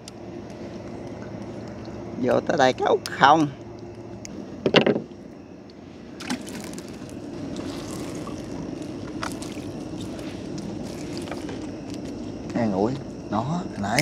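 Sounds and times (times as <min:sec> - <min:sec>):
light knocks on boat: 0:04.6 - 0:05.1
water sloshing and trickling: 0:06.0 - 0:12.4.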